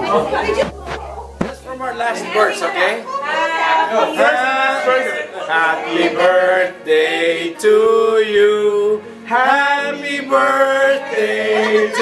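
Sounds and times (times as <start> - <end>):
man singing: 5.8 - 12.0.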